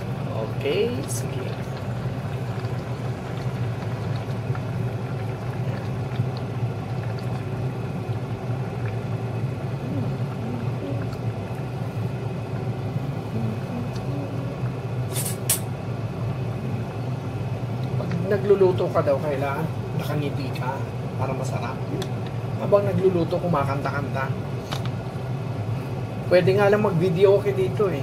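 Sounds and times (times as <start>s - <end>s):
pot of soup boiling: 0.0s - 28.0s
steady low hum: 0.0s - 28.0s.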